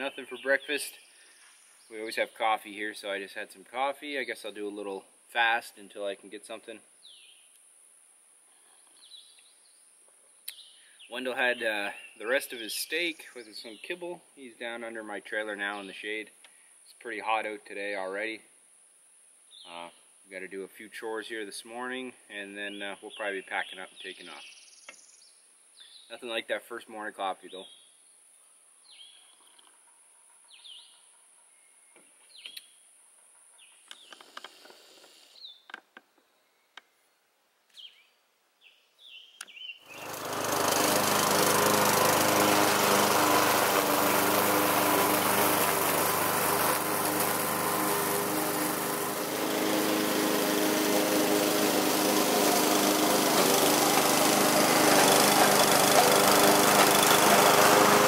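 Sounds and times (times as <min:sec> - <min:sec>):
faint bird chirps: 0:36.3 - 0:37.1
motor running loudly: 0:40.0 - 0:58.0.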